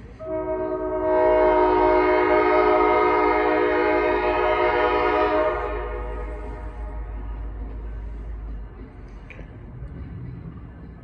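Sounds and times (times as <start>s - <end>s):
diesel locomotive horn chord: 0.0s - 7.6s.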